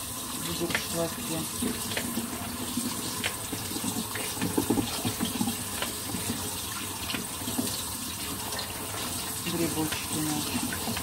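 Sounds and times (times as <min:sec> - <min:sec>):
water splashing through colander: 0:00.0 - 0:11.0
tap running into steel sink: 0:00.6 - 0:07.8.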